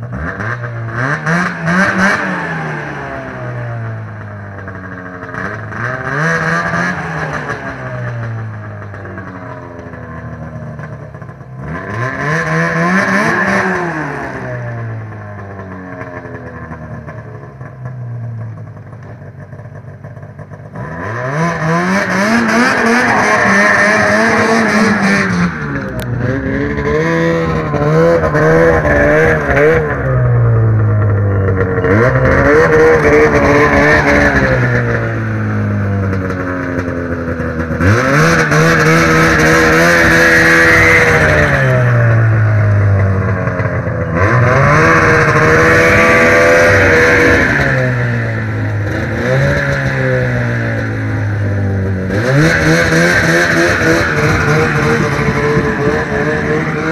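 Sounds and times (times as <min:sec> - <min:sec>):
snowmobile engine idling and revving: 0:00.0 - 0:56.9.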